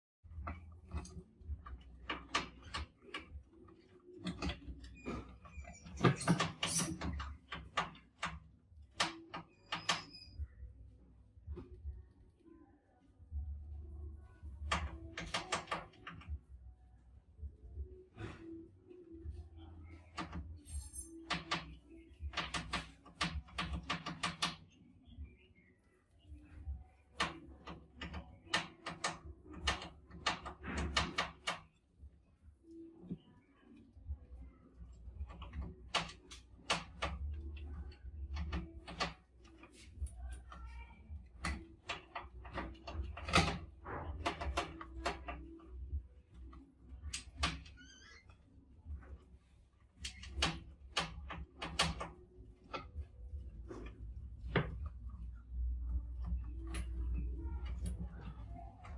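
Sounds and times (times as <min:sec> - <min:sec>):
mice clicking on wire mesh: 0:00.4 - 0:10.3, 0:50.0 - 0:58.9.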